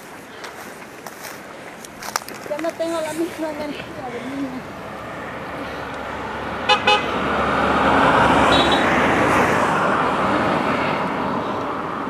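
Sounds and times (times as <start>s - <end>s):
vehicle passing on road: 0.0s - 12.0s
vehicle horn toots: 6.7s - 7.2s, 8.5s - 9.0s.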